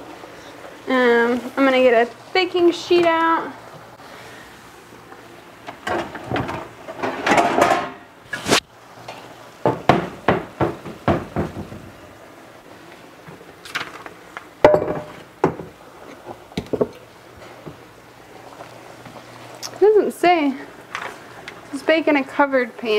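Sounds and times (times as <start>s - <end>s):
dishes clattering in cabinet: 5.8s - 8.1s, 14.6s - 15.7s
glass dish clunking on countertop: 14.6s - 15.7s.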